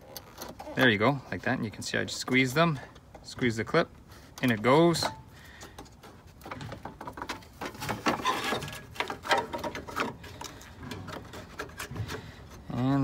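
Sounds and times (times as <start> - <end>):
plastic scraping: 6.0 - 12.7.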